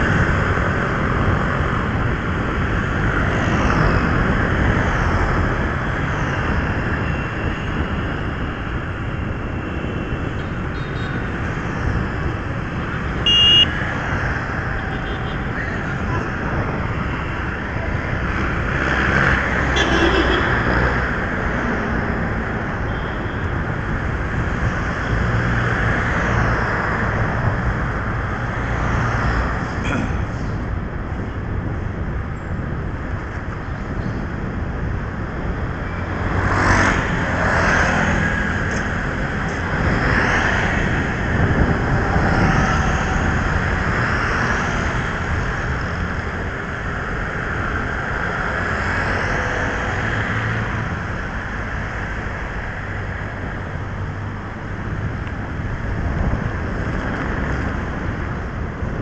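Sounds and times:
street traffic: 0.0s - 59.0s
wind on microphone: 0.0s - 59.0s.

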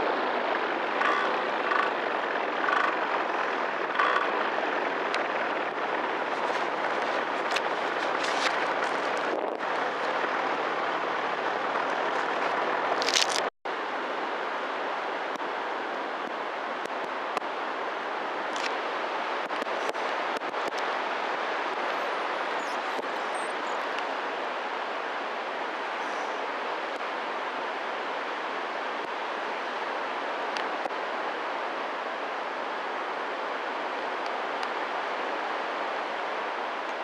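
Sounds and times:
wind rushing on microphone: 0.0s - 37.0s
crackles: 0.7s - 13.5s, 18.5s - 18.8s.

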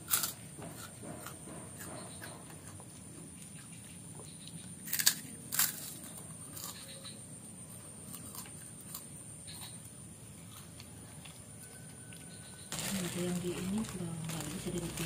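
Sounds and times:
child crunching crackers: 0.0s - 0.9s, 4.8s - 7.0s, 8.0s - 9.8s, 12.1s - 15.0s.

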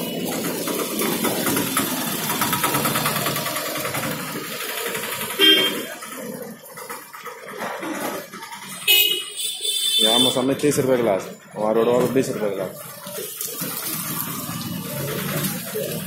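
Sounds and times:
vehicle engine rattling: 0.0s - 16.0s
car horn honk: 5.4s - 5.9s, 8.8s - 10.5s.

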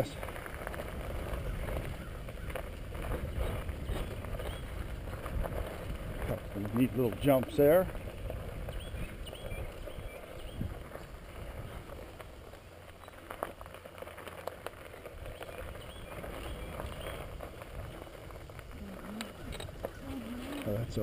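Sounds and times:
bicycle tyres crunching on gravel: 0.0s - 21.0s
bike clicks and rattles: 0.0s - 21.0s.

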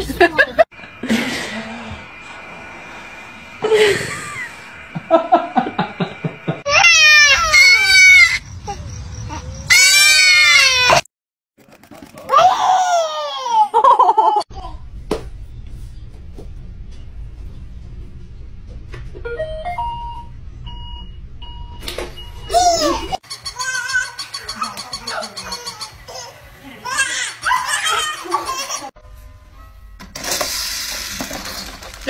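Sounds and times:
babies squealing and crying: 6.7s - 11.0s, 22.5s - 28.9s
babies laughing: 12.3s - 14.5s, 22.6s - 29.0s.

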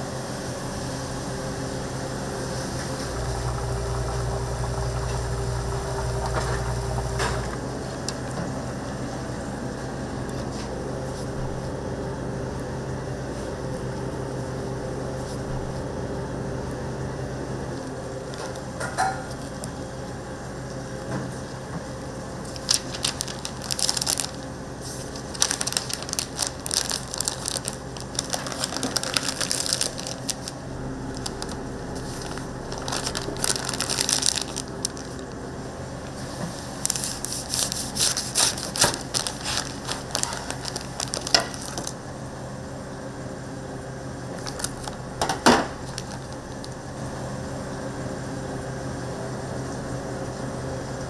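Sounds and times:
kitchen hum: 0.0s - 51.0s
crisp crackling and crunching: 22.4s - 42.0s, 44.4s - 47.0s.

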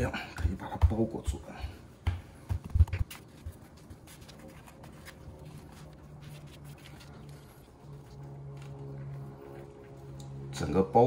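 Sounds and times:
dull thumps of dough: 0.0s - 3.2s
hands rubbing dough: 0.0s - 10.1s.

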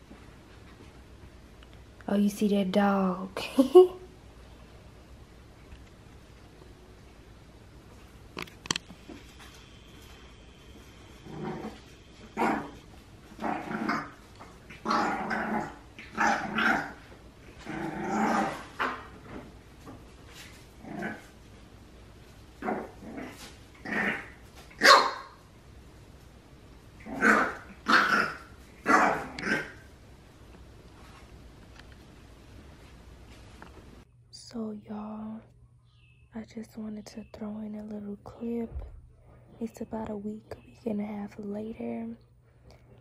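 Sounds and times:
puppy barking and growling: 11.2s - 19.2s, 20.8s - 21.4s, 22.6s - 25.4s, 27.0s - 29.9s.

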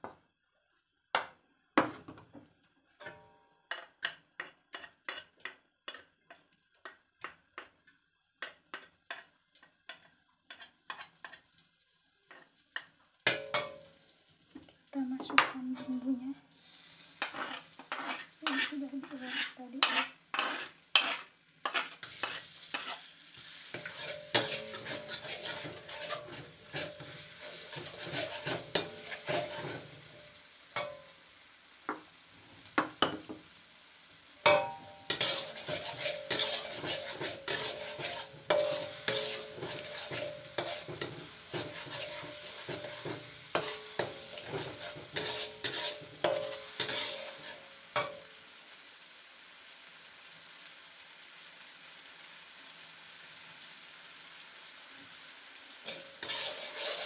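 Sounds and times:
paste sizzling in hot oil: 0.0s - 57.0s
metal spatula scraping wok: 3.0s - 6.1s, 8.4s - 11.5s, 15.7s - 31.1s, 34.4s - 48.3s, 55.8s - 57.0s.

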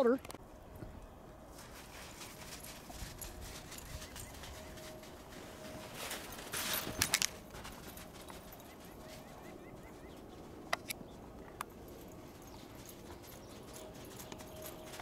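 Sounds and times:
footsteps crunching in snow: 1.5s - 10.5s.

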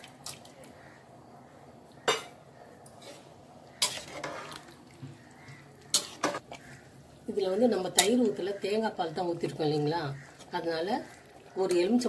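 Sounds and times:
spoon scraping pot: 2.1s - 4.8s, 5.9s - 6.8s.

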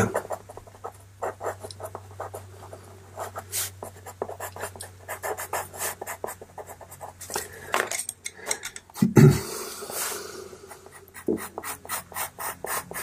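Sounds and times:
pastel pencil scratching paper: 0.0s - 7.2s, 10.8s - 13.0s
low steady hum: 0.0s - 13.0s.

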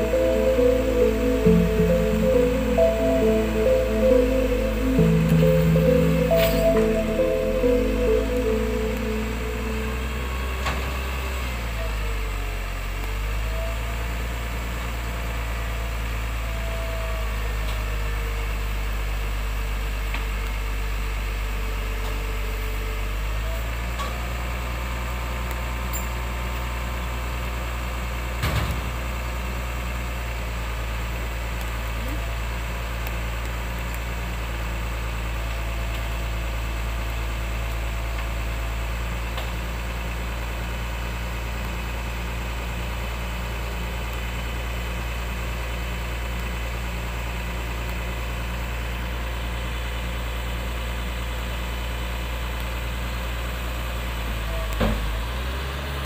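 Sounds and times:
hydraulic crane whine: 0.0s - 12.4s.

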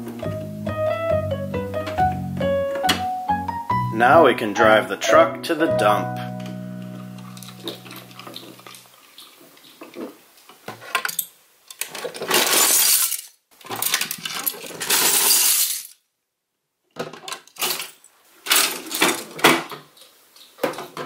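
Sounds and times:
plastic toy pieces clattering: 10.9s - 16.0s, 17.0s - 19.7s.

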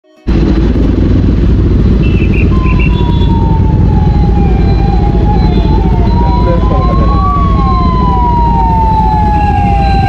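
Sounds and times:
motorcycle engine idling: 0.3s - 8.6s
distant ambulance siren: 0.3s - 10.0s.

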